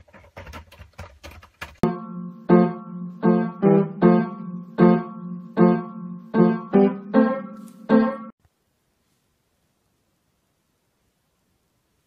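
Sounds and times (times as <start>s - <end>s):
keyboard low chord struck: 1.8s - 8.3s.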